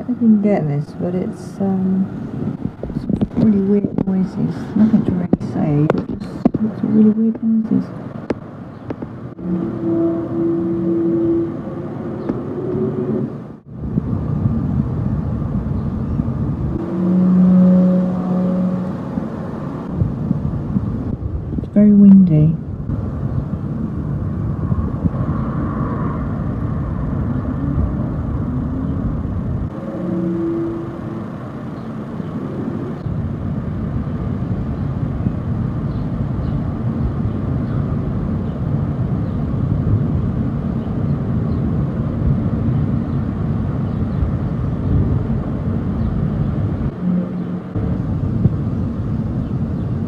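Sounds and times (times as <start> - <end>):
low rumbling drone: 0.0 - 50.0
wind buffeting microphone: 0.0 - 50.0
held horn-like tones: 9.3 - 13.7, 16.6 - 20.4, 25.0 - 33.2, 46.7 - 48.7.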